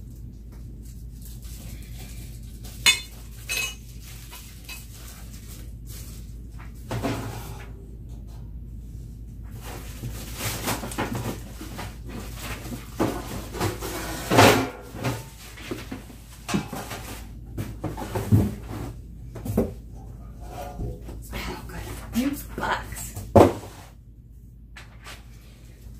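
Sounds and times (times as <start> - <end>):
plastic wrapping rustling: 0.0 - 6.9, 9.5 - 18.9
plastic baskets knocking: 10.0 - 18.7.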